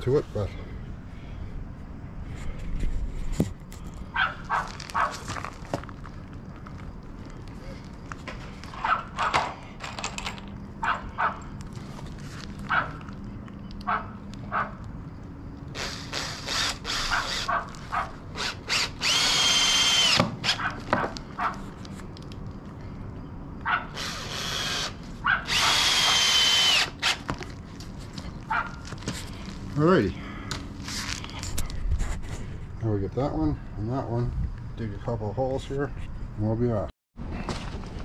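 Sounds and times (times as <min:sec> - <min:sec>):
cordless drill whining: 0:15.7 - 0:17.5, 0:18.3 - 0:20.6, 0:24.0 - 0:27.3.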